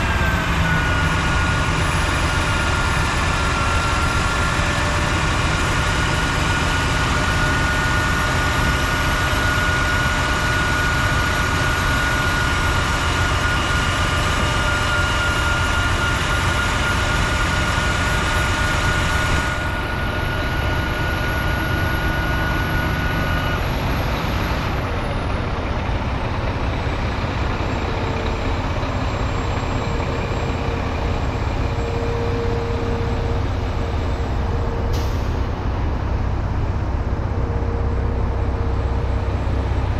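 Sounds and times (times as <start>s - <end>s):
diesel truck engine running: 0.0s - 39.9s.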